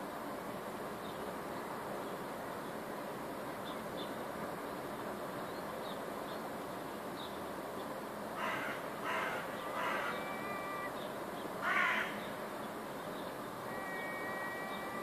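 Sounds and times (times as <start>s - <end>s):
crow cawing: 8.4s - 11.0s, 11.6s - 12.2s, 13.7s - 15.0s.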